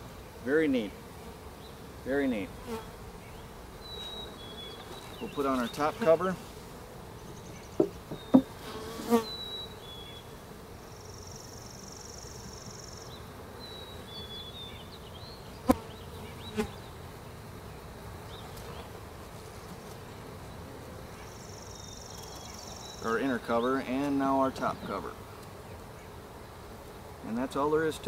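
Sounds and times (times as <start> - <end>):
bees buzzing: 0.0 - 28.0
wooden knocks on hive: 7.8 - 8.6.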